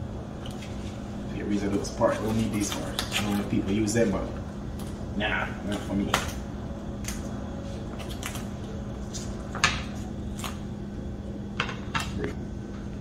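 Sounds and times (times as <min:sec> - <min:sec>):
cauliflower leaves snapping: 0:02.2 - 0:03.6.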